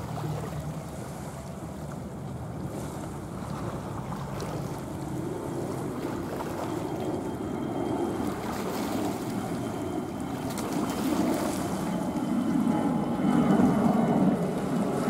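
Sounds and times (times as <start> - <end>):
jet airliner roar passing overhead: 2.4 - 15.0
faint high whine: 4.1 - 15.0.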